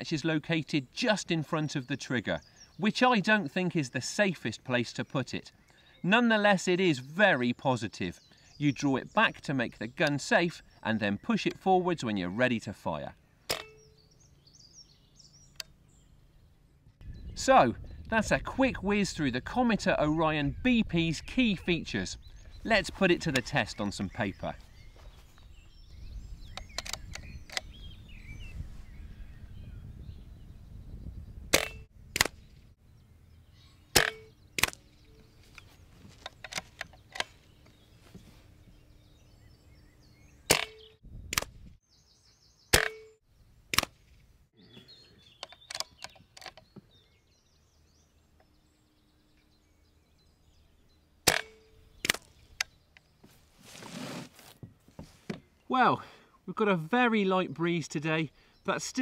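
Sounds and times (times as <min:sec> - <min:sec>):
air rifle shots: 0:31.5 - 0:32.4, 0:33.9 - 0:34.8, 0:40.5 - 0:41.6, 0:51.2 - 0:52.3.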